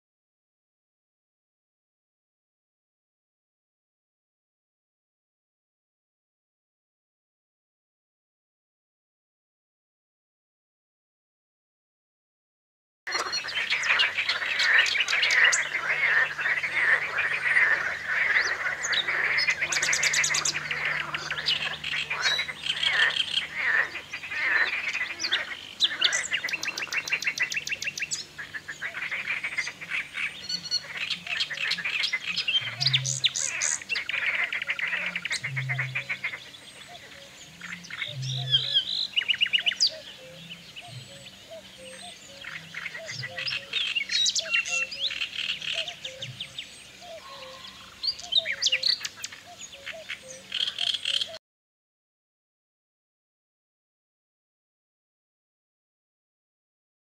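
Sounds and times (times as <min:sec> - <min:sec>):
birds singing and calling: 0:13.1 - 0:51.4
frogs croaking: 0:13.1 - 0:51.4.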